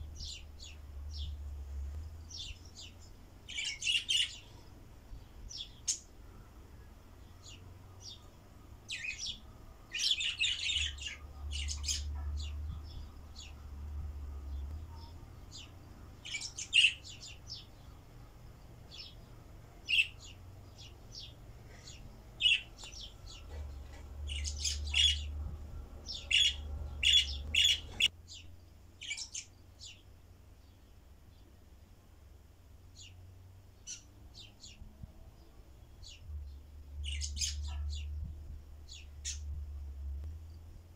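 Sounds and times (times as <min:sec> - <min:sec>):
budgerigars chirping: 0:03.5 - 0:04.5, 0:08.9 - 0:13.6, 0:15.5 - 0:17.7, 0:19.8 - 0:25.4, 0:26.0 - 0:28.1, 0:37.0 - 0:38.1.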